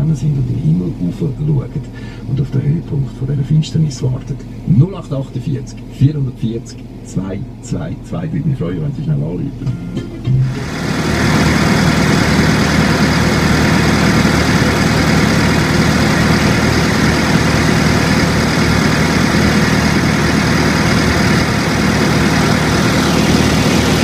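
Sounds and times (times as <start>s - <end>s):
tractor engine running: 10.2s - 24.0s
high whine sliding down: 10.4s - 24.0s.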